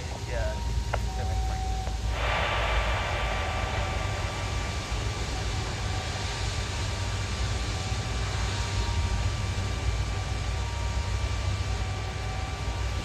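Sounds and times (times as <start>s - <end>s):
high jet fan whine: 0.0s - 13.0s
jet engine roar: 0.0s - 13.0s.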